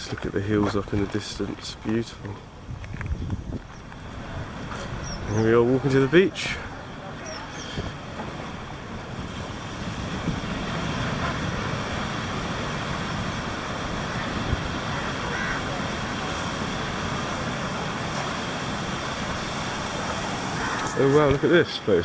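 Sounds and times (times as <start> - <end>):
surf breaking on beach: 3.7 - 22.0.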